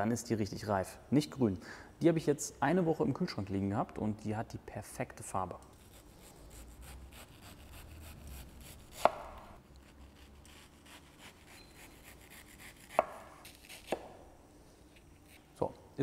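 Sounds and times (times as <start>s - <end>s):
knife slicing mango: 5.8s - 14.2s.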